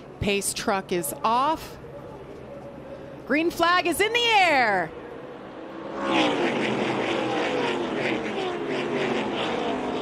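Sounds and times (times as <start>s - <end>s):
race cars passing at full throttle: 4.8s - 10.0s.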